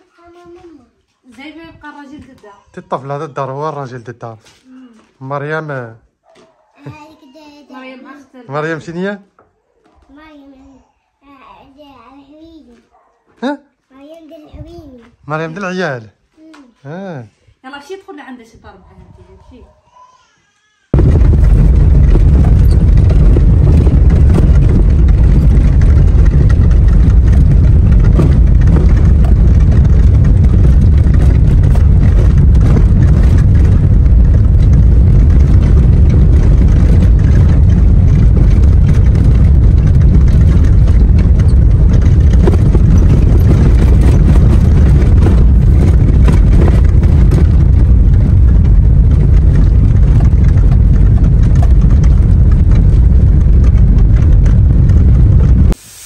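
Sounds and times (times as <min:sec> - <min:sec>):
vehicle engine and tyres rumbling: 0:21.0 - 0:55.8.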